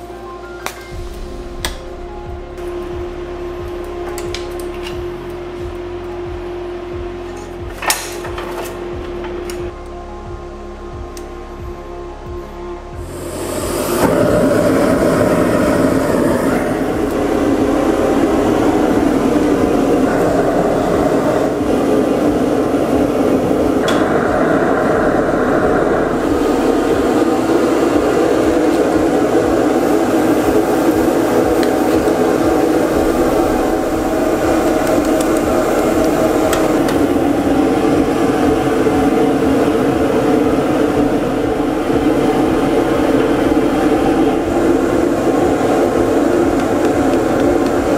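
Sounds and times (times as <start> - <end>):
gas torch rushing: 12.9 - 47.9.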